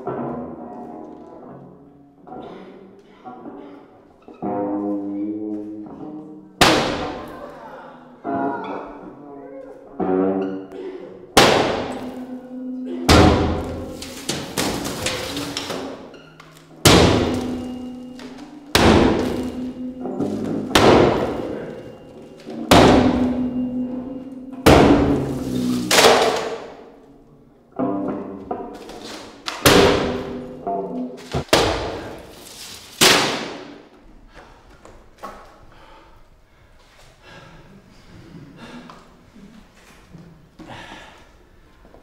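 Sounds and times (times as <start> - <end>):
bat smashing mirror glass: 13.1 - 16.0, 16.8 - 22.0.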